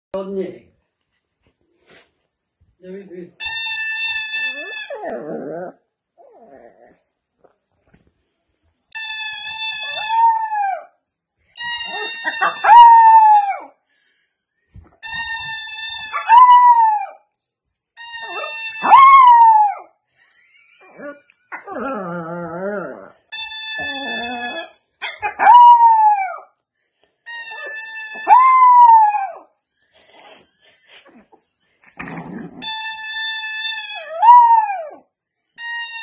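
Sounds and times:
puppy howling: 16.2s - 17.2s, 18.3s - 19.9s, 25.2s - 26.5s, 28.2s - 29.5s, 34.1s - 35.0s.

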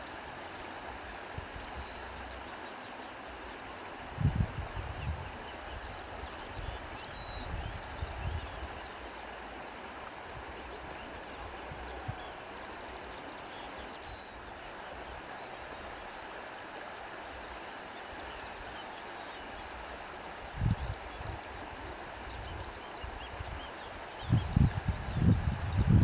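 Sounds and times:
wind: 0.0s - 26.0s
gusts buffeting microphone: 4.1s - 5.4s, 24.2s - 26.0s.

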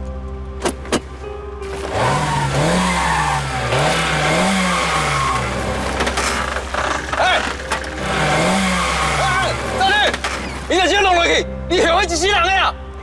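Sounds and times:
van engine revving: 1.6s - 11.3s.

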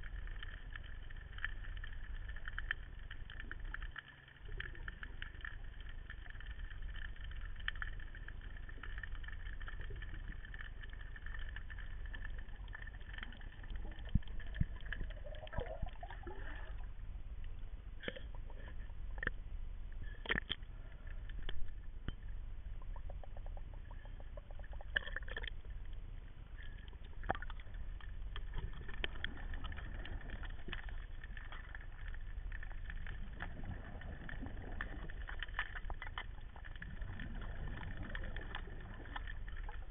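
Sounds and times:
underwater low rumble: 0.0s - 39.9s
water gurgle: 0.0s - 39.9s.

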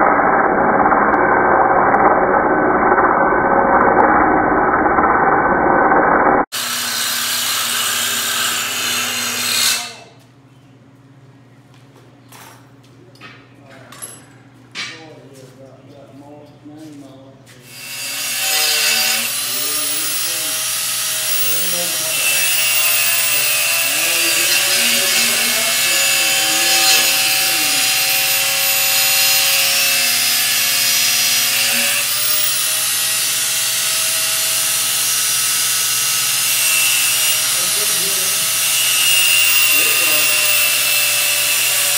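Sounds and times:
angle grinder grinding metal: 6.5s - 10.2s, 17.6s - 41.9s.

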